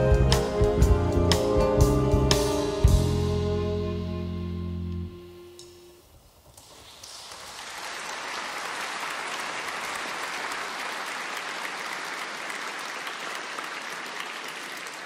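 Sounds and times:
audience applause: 0:06.7 - 0:15.0.

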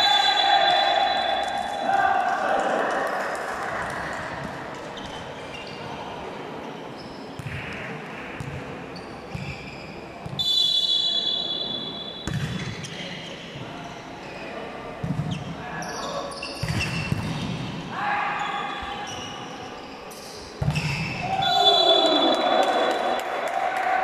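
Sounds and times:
whistle blown: 0:00.0 - 0:01.8, 0:10.4 - 0:12.3, 0:20.8 - 0:22.4
crowd chatter in hall: 0:00.0 - 0:24.0.

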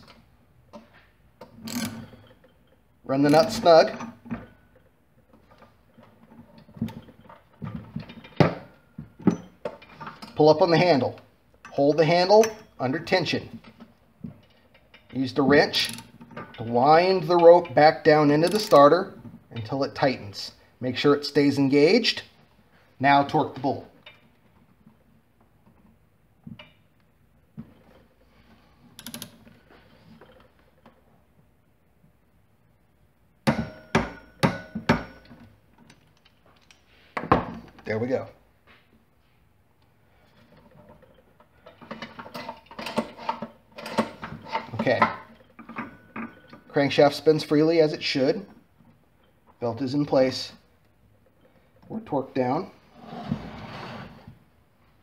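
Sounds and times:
wrench clicking on bolt: 0:01.7 - 0:02.0, 0:18.4 - 0:19.0, 0:29.0 - 0:29.4.

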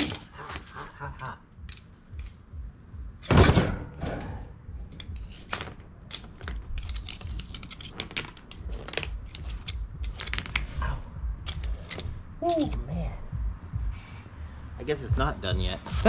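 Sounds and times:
hot stones clicking and crackling: 0:00.0 - 0:03.3, 0:04.9 - 0:12.9.

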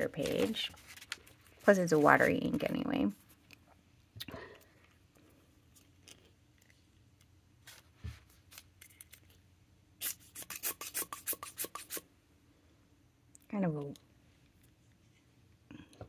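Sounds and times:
paper rustling: 0:00.0 - 0:03.4.

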